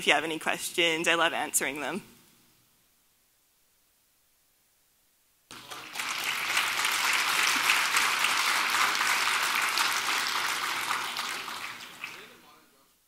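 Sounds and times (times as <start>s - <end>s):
audience applause: 5.5s - 12.5s.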